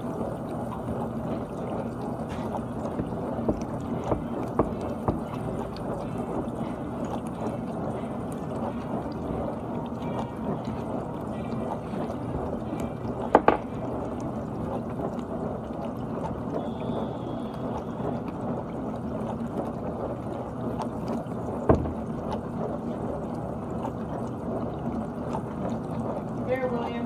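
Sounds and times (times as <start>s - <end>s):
dishwasher water spraying: 1.3s - 6.3s, 21.7s - 22.4s
sharp knocks: 3.5s - 5.2s, 13.4s - 13.7s, 21.7s - 22.1s.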